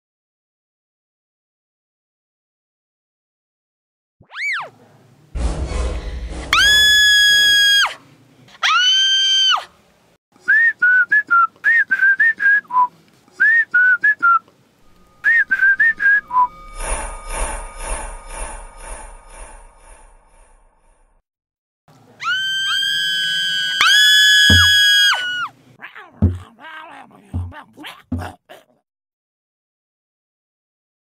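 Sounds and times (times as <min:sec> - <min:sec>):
swooping whistle tones: 0:14.9 - 0:17.2
chirping whistle notes: 0:14.9 - 0:17.6.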